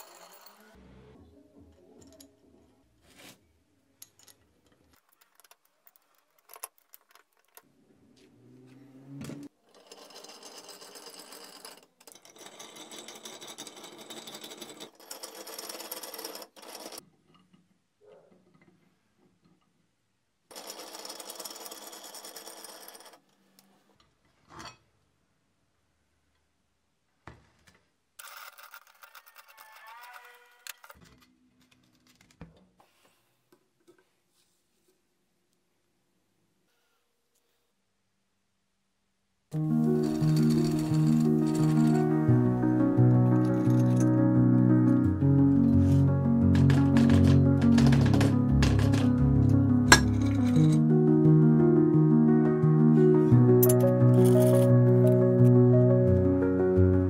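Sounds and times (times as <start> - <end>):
metallic clicks and knocks: 46.6 - 50.8.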